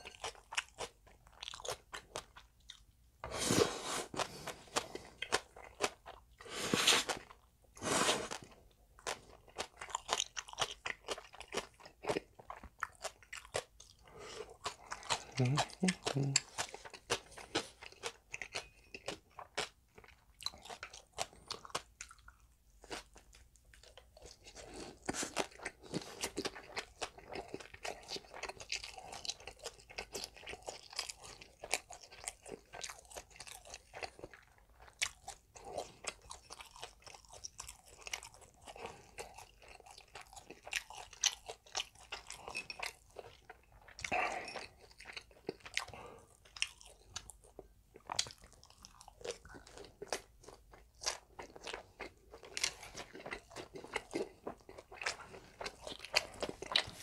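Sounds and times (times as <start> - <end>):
crunching and chewing fried food: 0.0 - 57.0.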